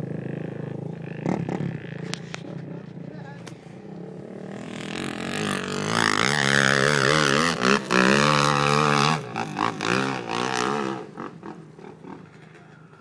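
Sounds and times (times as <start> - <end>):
vehicle engine revving hard: 4.4 - 12.2.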